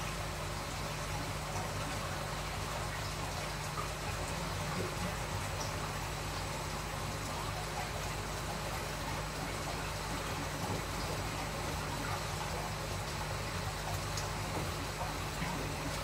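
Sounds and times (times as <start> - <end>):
pump hum: 0.0 - 16.0
running water: 0.0 - 16.0.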